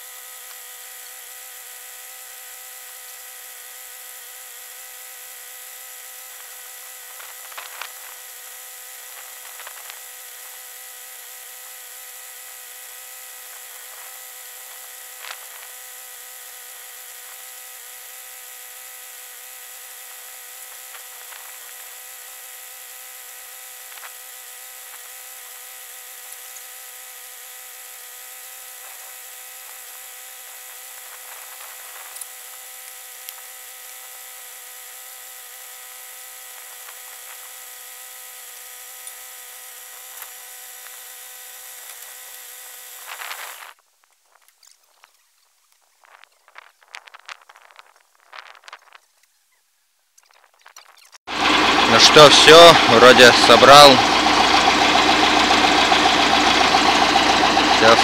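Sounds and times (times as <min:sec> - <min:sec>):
high whine: 0:51.3 - 0:58.0.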